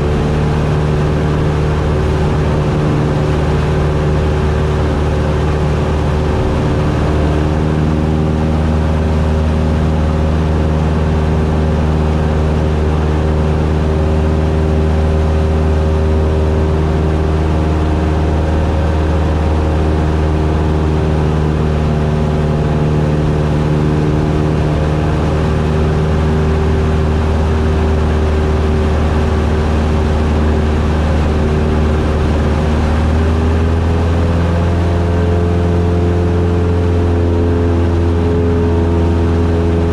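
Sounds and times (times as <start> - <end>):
aircraft engine and propeller drone: 0.0 - 39.9.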